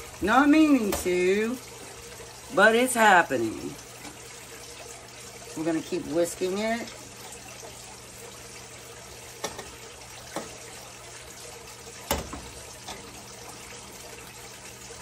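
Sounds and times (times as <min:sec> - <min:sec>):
milk pouring: 0:00.0 - 0:15.0
utensils knocking on pot: 0:09.4 - 0:10.6.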